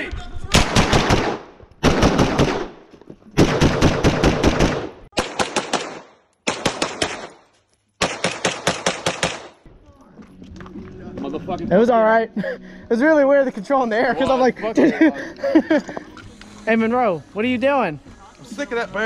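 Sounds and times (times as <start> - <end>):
rapid gunfire: 0.5 - 2.8, 3.4 - 7.4, 8.0 - 9.6.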